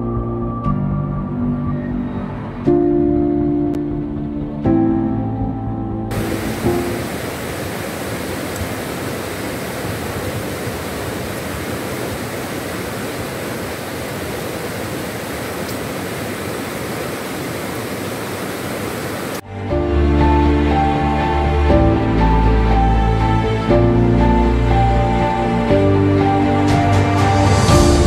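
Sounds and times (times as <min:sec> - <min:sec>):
background music: 0:00.0 - 0:07.1, 0:19.4 - 0:28.0
river rapids rushing: 0:06.1 - 0:19.4.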